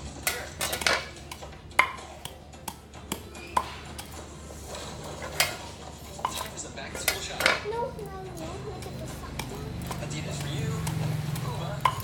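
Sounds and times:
pestle pounding in wooden mortar: 9.4 - 12.0.

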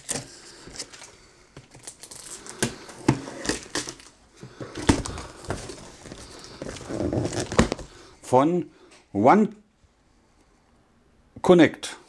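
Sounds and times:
cardboard flaps being handled: 2.4 - 8.0.

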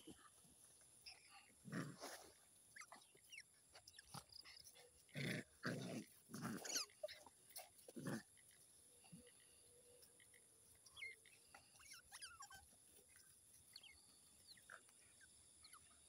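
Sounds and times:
otter squeaks and chirps: 2.7 - 4.6, 10.8 - 14.0.

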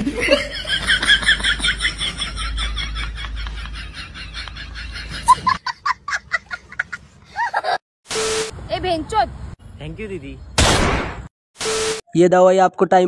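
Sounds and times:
high-pitched cackling laugh: 0.0 - 7.8.

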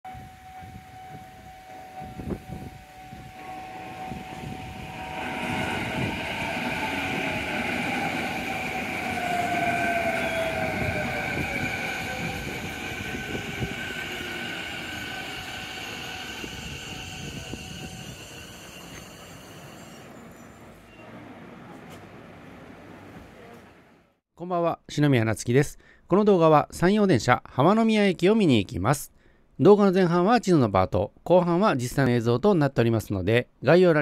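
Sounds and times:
level crossing bell ringing: 0.1 - 8.0
traction motors whining: 3.4 - 21.2
train wheels rumbling on rails: 3.4 - 23.8.

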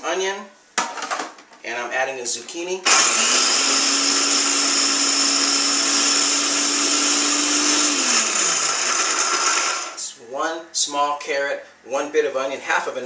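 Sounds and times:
food processor motor whine: 2.9 - 10.0.

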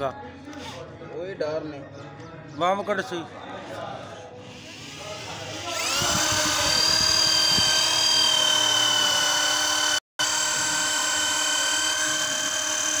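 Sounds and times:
electric drill whining: 4.4 - 13.0.

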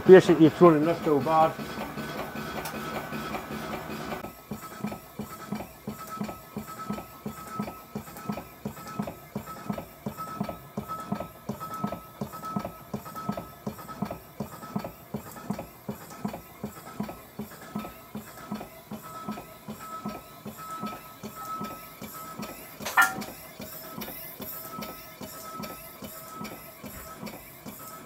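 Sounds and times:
steam engine beating evenly: 0.0 - 28.0.

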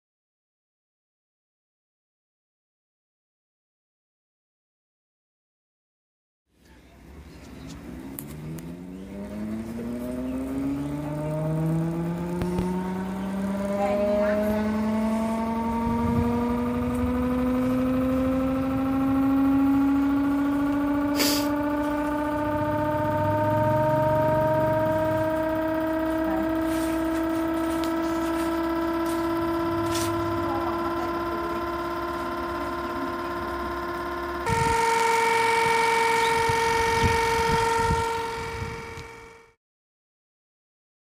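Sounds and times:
electric motor whining: 7.5 - 39.6.

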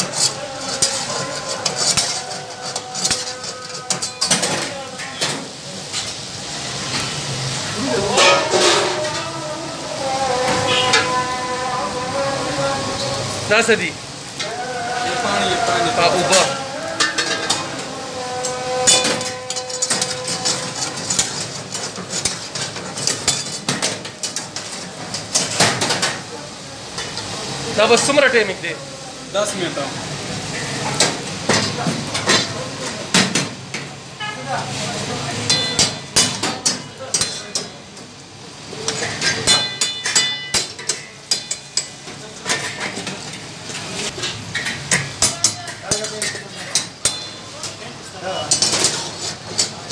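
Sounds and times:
metal utensils scraping a wok: 0.0 - 11.6, 12.7 - 28.7, 29.3 - 49.9
pan ringing: 8.0 - 9.4, 16.9 - 21.6, 35.5 - 36.2, 39.4 - 41.6, 47.0 - 47.5.

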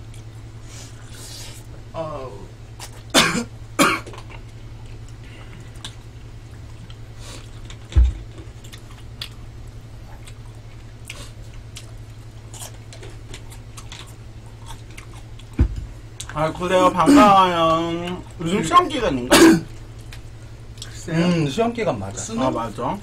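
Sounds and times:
low steady hum: 0.0 - 23.0
chewing and slurping noodles: 10.1 - 15.6
dull thump: 15.6 - 15.9.

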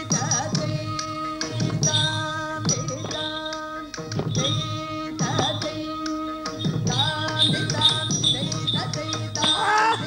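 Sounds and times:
percussion strokes: 0.0 - 10.0
dance music with held notes: 6.6 - 10.0.

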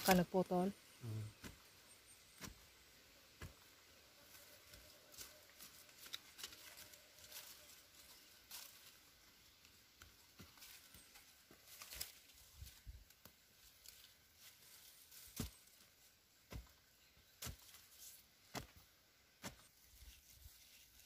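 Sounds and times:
tool scraping loose soil: 19.4 - 21.0.

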